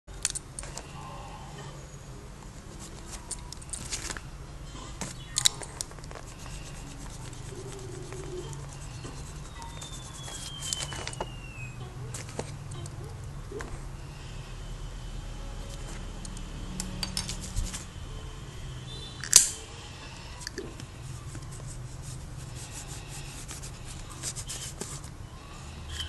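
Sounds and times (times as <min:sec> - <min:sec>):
steady low hum: 0:00.1 - 0:26.0
pen scratching and tapping on paper: 0:05.0 - 0:11.3
pen click: 0:19.2 - 0:19.5.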